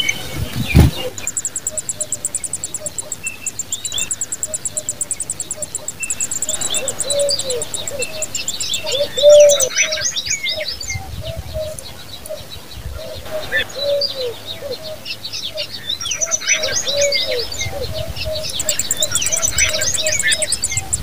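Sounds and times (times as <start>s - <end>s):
nestlings begging chirps: 0.0s - 10.9s, 13.6s - 21.0s
low cooing note: 5.5s - 9.7s.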